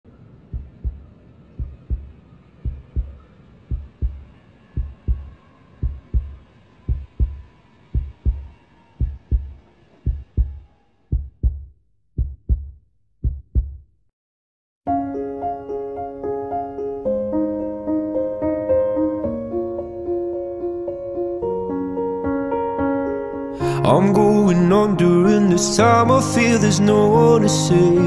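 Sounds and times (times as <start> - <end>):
faint background tone: 0.1 - 11.6
heartbeat thumps: 0.5 - 13.9.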